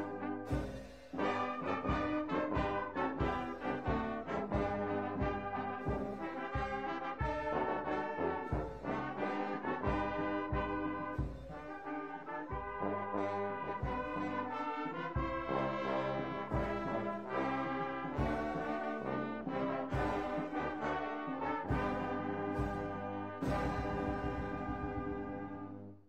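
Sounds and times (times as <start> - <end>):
steady beat: 0.0 - 25.7
background music with brass chords: 0.0 - 26.0.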